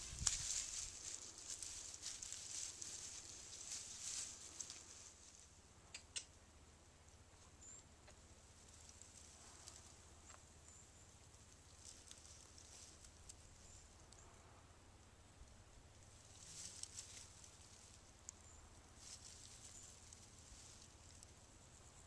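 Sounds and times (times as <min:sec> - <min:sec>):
grass rustling and crackling: 0:00.0 - 0:05.9, 0:07.1 - 0:22.0
sharp click: 0:05.9 - 0:06.4.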